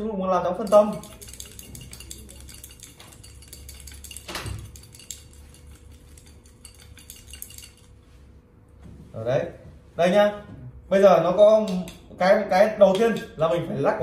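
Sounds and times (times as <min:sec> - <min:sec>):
counters rattling in ceramic bowl: 0:00.6 - 0:08.0.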